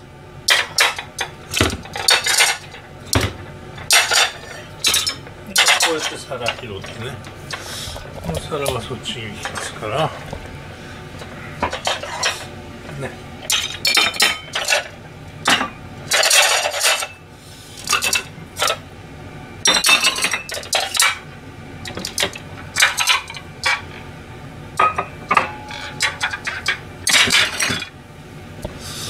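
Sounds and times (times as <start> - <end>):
plates clattering and clinking: 0.5 - 7.6, 11.2 - 12.5, 13.5 - 17.2, 19.6 - 21.2, 24.8 - 27.9.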